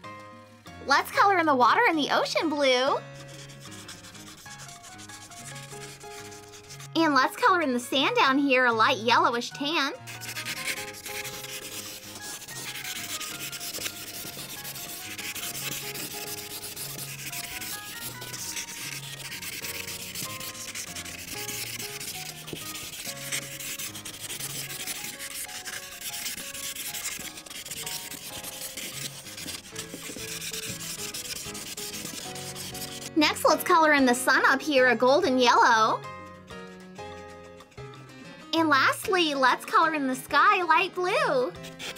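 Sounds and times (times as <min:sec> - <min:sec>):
marker tip rubbing on paper: 0:02.4 - 0:07.0, 0:10.0 - 0:33.8, 0:41.6 - 0:41.9.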